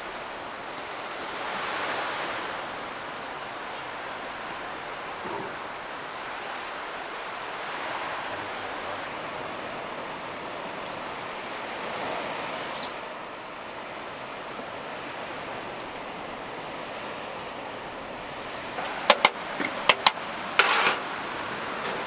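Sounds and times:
outdoor background hiss: 0.0s - 22.0s
faint light ticks: 10.8s - 11.6s.

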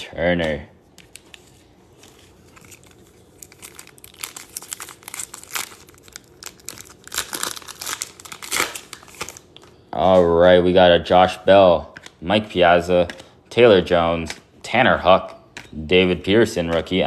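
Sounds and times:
wrapper crinkling and tearing: 1.0s - 9.8s.

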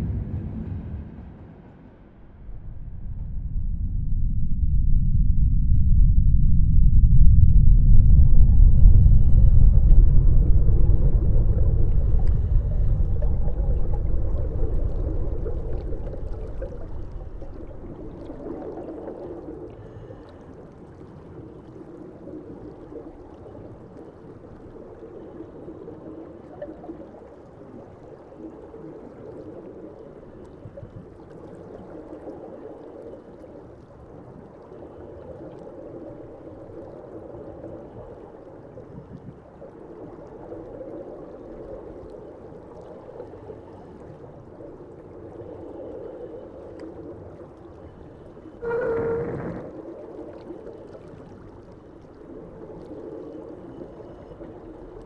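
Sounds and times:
deep rumble: 0.0s - 21.1s, 48.4s - 50.0s
muffled low drone wash: 0.0s - 55.0s.

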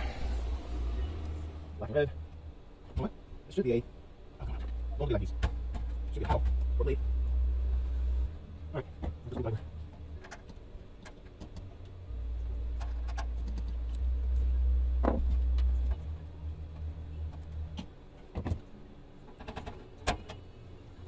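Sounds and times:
low rumble: 0.0s - 2.7s.

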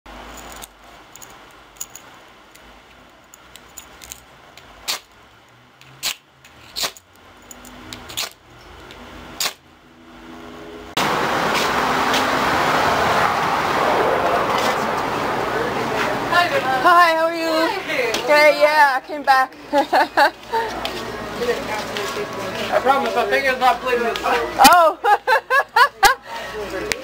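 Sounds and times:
loud steady outdoor noise: 0.1s - 27.0s
ball chain clicking and jingling: 0.2s - 2.1s, 7.0s - 7.8s.

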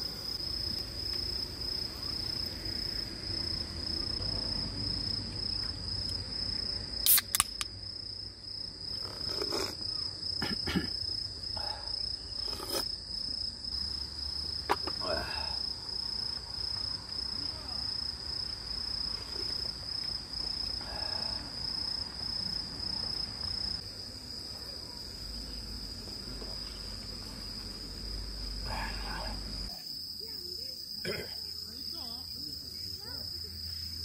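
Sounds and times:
crickets trilling: 0.0s - 34.0s
can tab pulled open: 7.0s - 7.7s.

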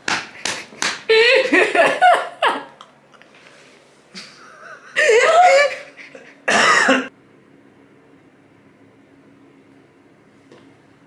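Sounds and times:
person laughing loudly: 0.5s - 2.9s, 4.2s - 7.1s.

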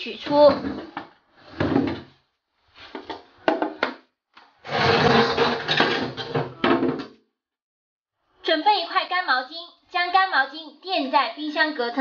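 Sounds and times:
freezer drawer scraping and clattering: 4.6s - 6.3s.

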